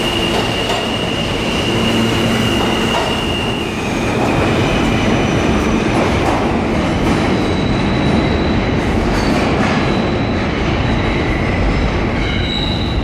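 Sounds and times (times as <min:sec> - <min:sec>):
high wheel squeal: 0:00.0 - 0:05.1, 0:12.2 - 0:13.0
train wheels rumbling on rails: 0:00.0 - 0:13.0.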